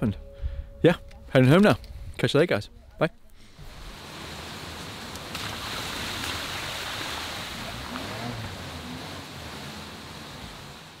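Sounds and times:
stream water rushing: 3.5 - 11.0
car tyres splashing: 3.6 - 11.0.

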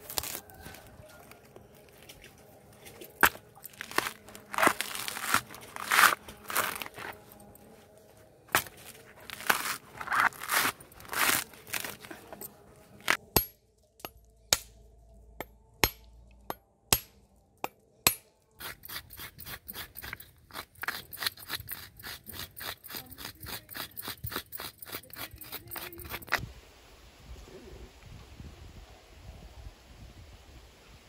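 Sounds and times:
coconut flesh being scraped: 0.0 - 1.3, 3.2 - 7.3, 8.5 - 12.4, 13.0 - 13.3, 18.6 - 26.4.

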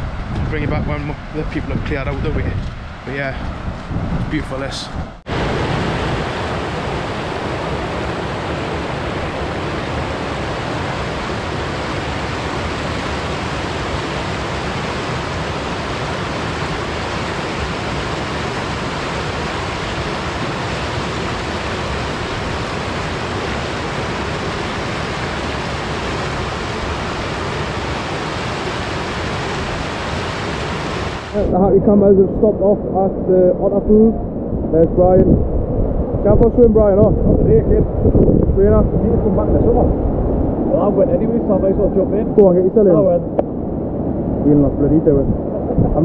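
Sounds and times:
river rushing over rocks: 5.3 - 31.4.

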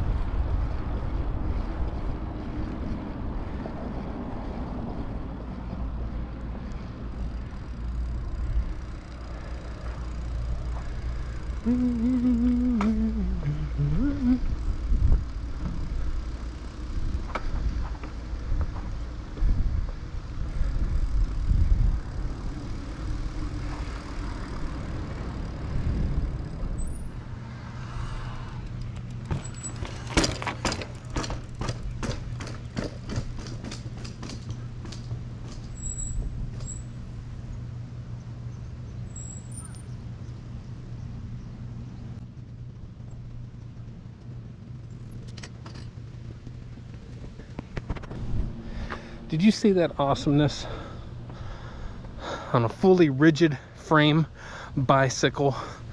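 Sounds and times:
wind rushing over microphone: 0.0 - 7.2, 13.4 - 16.3, 16.9 - 28.8
bicycle tyre rumble on pavement: 0.0 - 55.9
steady low hum: 0.0 - 55.9.

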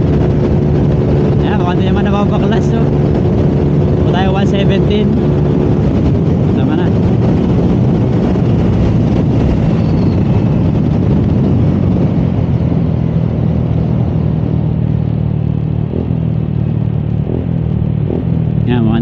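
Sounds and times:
scooter engine running hard: 0.0 - 19.0
wind noise on camera: 0.0 - 19.0.

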